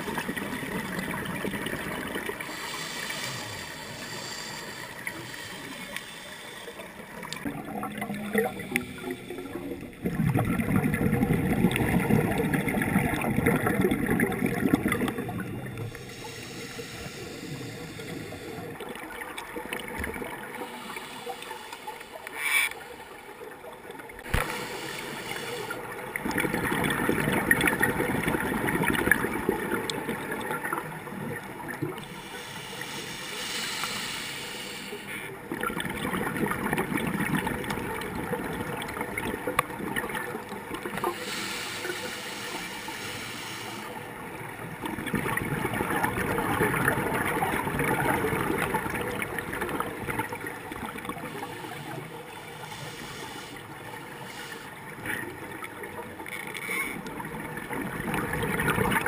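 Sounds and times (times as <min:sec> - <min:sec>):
underwater exhaled bubbles gurgling: 0:00.0 - 0:59.0.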